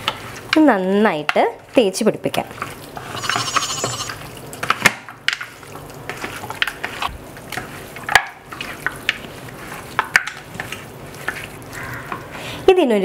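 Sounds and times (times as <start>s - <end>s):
wet squishing and slapping of meat: 4.2s - 12.4s.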